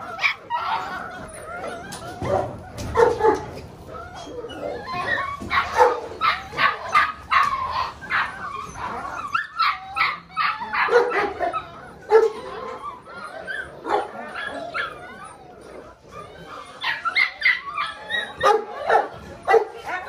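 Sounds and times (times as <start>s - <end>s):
puppies yapping: 0.0s - 20.0s.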